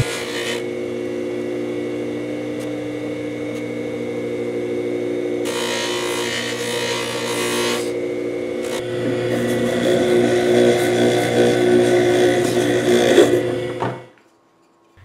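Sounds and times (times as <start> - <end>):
polishing motor humming: 0.0 - 14.2.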